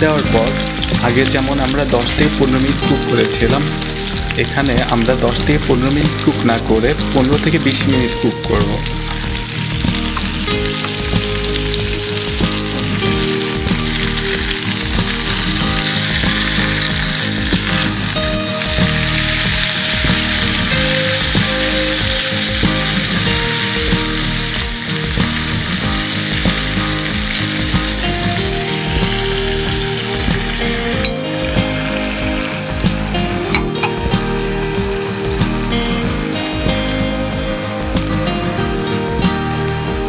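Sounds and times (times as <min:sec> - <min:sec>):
chicken sizzling in frying pan: 0:00.0 - 0:40.0.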